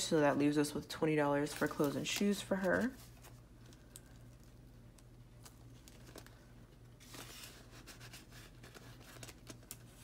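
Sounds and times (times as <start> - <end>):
low steady hum: 0.0 - 10.0
paper bill rustling: 5.4 - 10.0.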